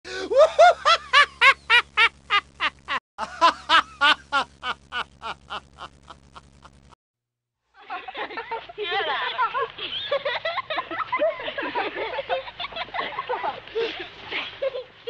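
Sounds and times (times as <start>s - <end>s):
low steady hum: 0.1s - 7.0s
person laughing heartily: 0.1s - 7.0s, 7.9s - 14.9s.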